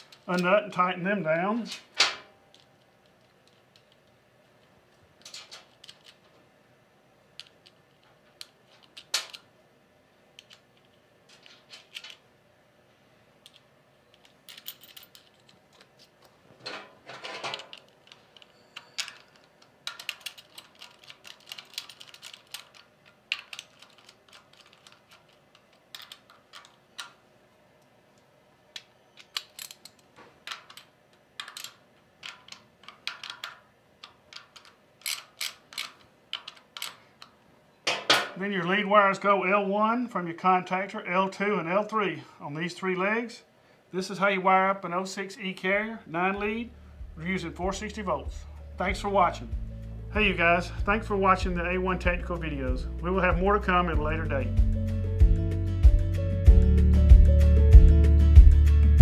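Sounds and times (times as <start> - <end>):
small metallic clicks and clinks: 16.7 - 27.2.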